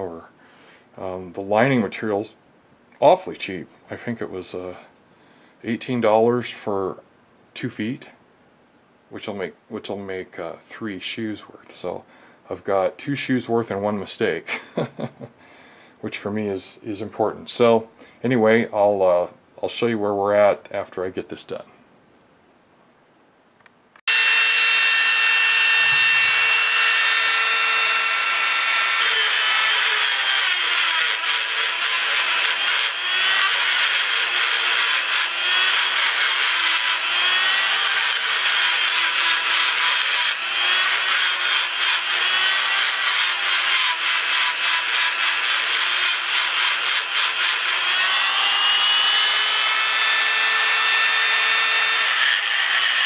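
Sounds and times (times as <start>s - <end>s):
rotary tool grinding metal: 24.1s - 53.0s.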